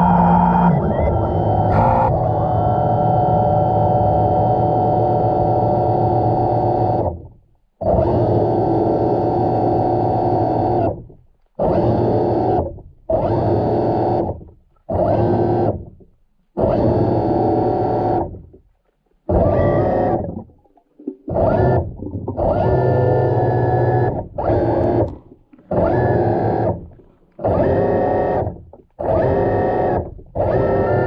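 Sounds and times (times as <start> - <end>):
sustained synthesizer chords: 0.0 - 5.6.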